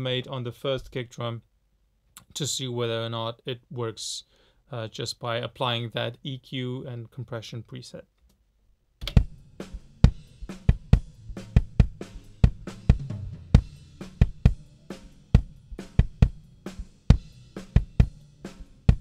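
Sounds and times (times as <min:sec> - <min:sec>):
kick drum hits: 0:09.0 - 0:09.4, 0:10.0 - 0:14.6, 0:15.4 - 0:16.4, 0:17.8 - 0:18.2
snare and cymbal bleed: 0:09.0 - 0:19.0.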